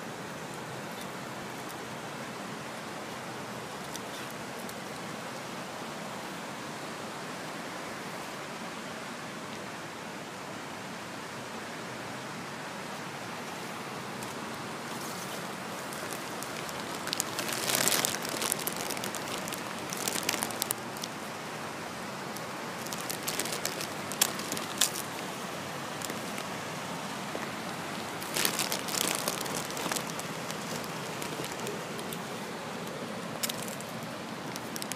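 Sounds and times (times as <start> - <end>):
crackling rustles: 3.0 - 5.1, 13.6 - 21.4, 22.3 - 34.9.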